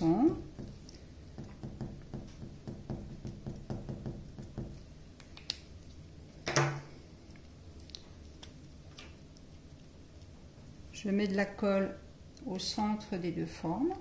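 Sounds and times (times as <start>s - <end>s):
marker tapping on paper: 1.4s - 4.8s.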